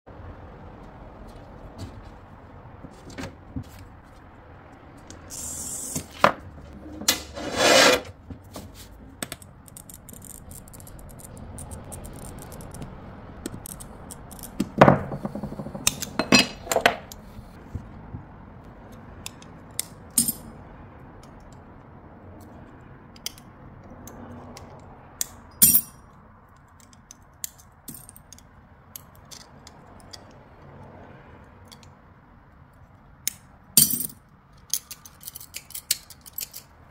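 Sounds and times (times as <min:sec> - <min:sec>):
glass cutter scoring glass: 0:07.1 - 0:08.1.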